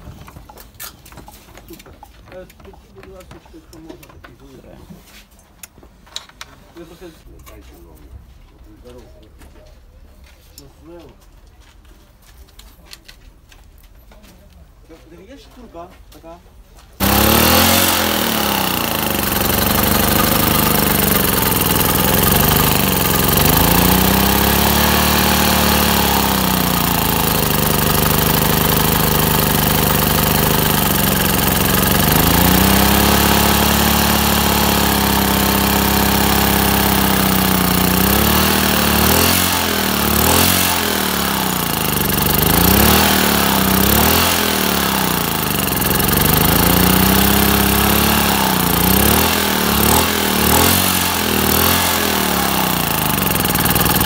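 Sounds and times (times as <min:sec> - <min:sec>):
generator engine revving: 0:17.0 - 0:54.0.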